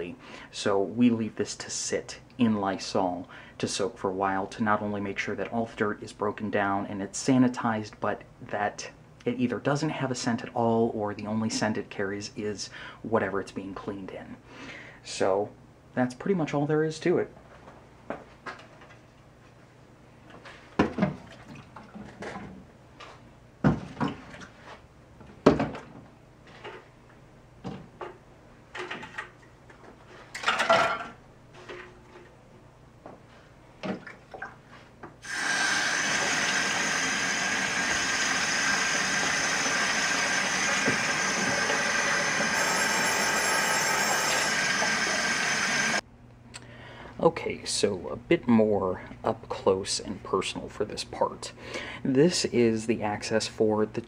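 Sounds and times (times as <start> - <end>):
faucet running into sink: 35.2 - 46.0.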